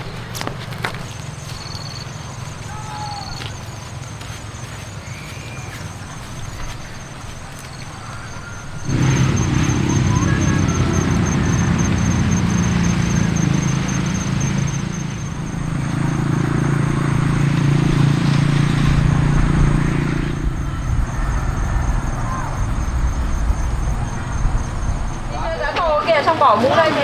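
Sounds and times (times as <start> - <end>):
engine running: 0.0 - 27.0.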